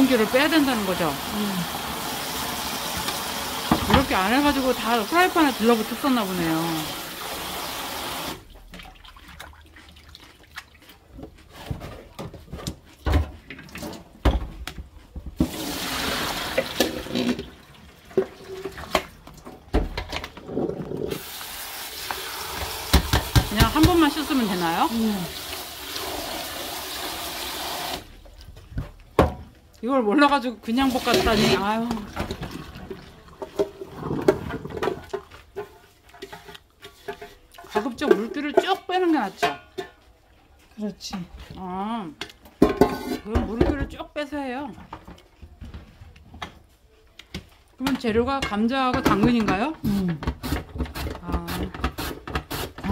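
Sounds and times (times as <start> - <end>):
running water: 0.0 - 11.5, 15.4 - 39.4
water splashing and sloshing: 0.0 - 52.9
plastic colander knocks and clicks: 47.8 - 52.9.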